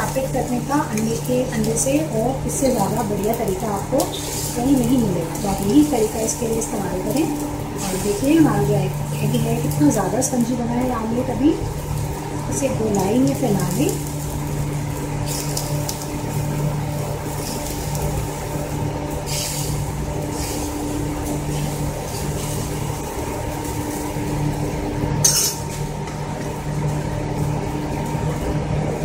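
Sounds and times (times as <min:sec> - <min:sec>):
steady low hum: 0:00.0 - 0:29.0
metal spoon scraping griddle pan: 0:19.3 - 0:20.8, 0:25.2 - 0:25.8.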